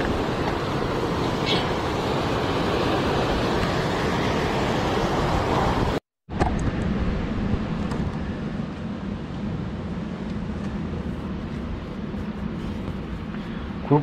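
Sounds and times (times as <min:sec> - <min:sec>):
waves washing over rocks: 0:00.0 - 0:06.0.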